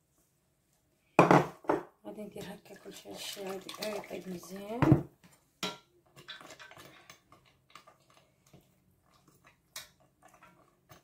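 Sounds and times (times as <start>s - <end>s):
faint kitchen clicks and taps: 3.7s - 11.0s.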